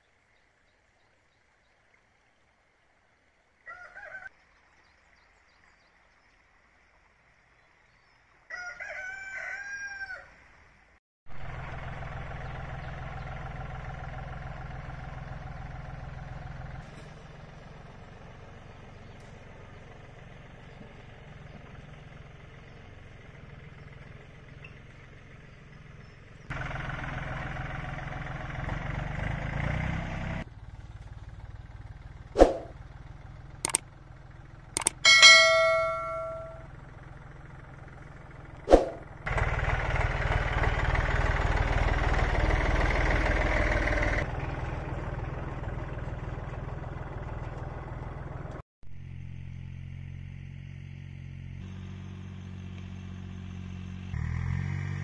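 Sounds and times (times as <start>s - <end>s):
rooster crowing: 3.6s - 4.3s, 8.5s - 10.4s
chicken call: 3.7s - 4.3s
tractor engine running: 11.3s - 55.0s.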